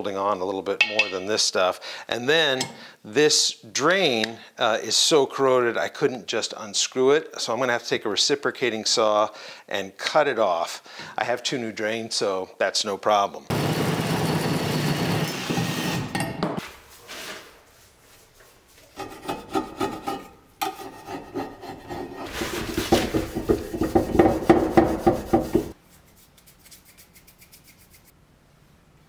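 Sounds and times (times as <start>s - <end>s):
scrubbing and scraping a sink: 16.9s - 28.1s.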